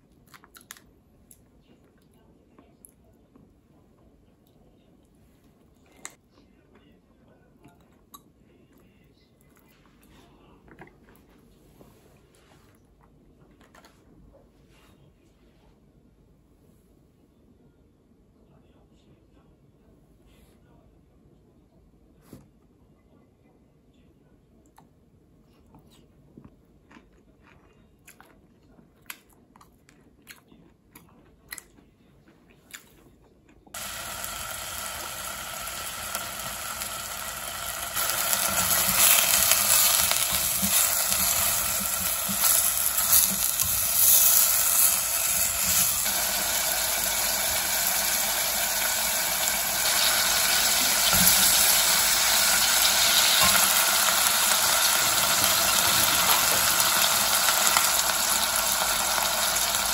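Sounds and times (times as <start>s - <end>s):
meat sizzling in a hot pot: 33.8s - 59.9s.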